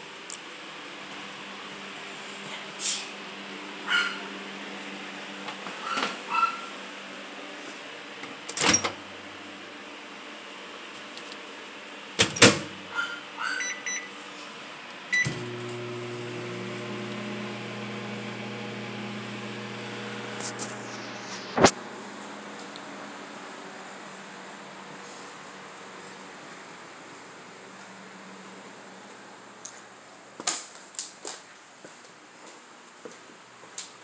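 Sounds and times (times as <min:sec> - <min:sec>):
microwave oven humming: 0:03.2 - 0:10.9, 0:11.8 - 0:30.1
keypad beeps: 0:13.6 - 0:14.1.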